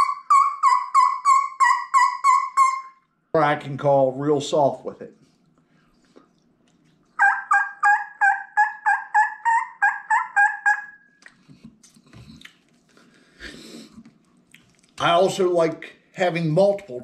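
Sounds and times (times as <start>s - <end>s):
turkey call yelps: 0.0s - 3.0s, 7.2s - 11.1s.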